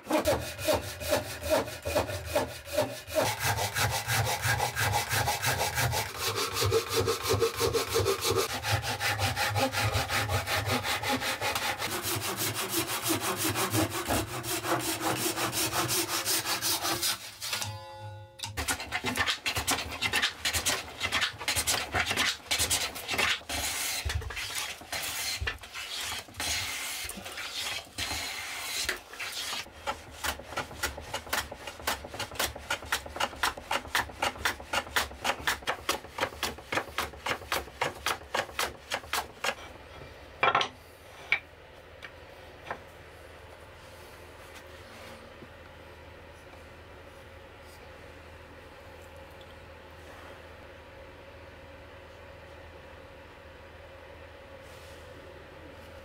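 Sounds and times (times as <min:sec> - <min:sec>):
hand plane shaving wood: 0:00.0 - 0:17.6, 0:18.6 - 0:39.6
handsaw cutting wood: 0:00.0 - 0:17.6, 0:18.6 - 0:39.6.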